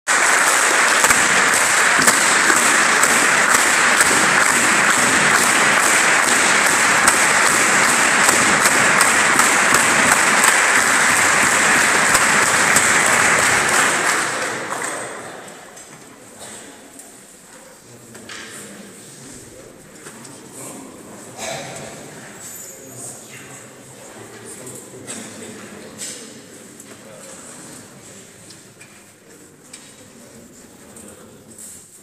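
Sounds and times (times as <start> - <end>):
audience applauding: 0.1 - 15.5.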